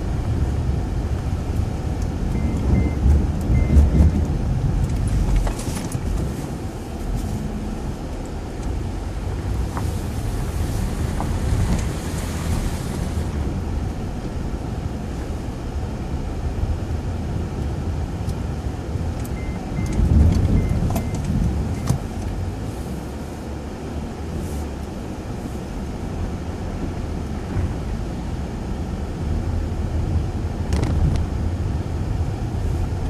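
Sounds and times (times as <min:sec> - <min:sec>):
road and engine rumble: 0:00.0 - 0:33.0.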